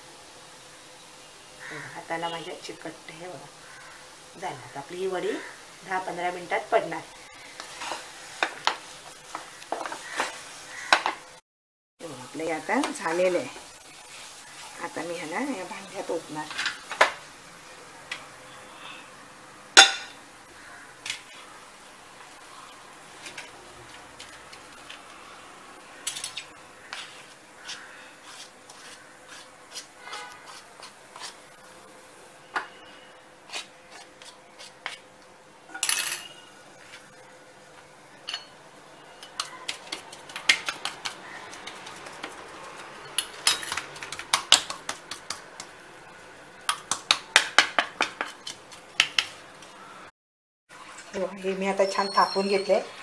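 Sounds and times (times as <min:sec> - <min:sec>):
spoon clinking on steel tray: 0:35.7 - 0:36.5, 0:38.3 - 0:38.5.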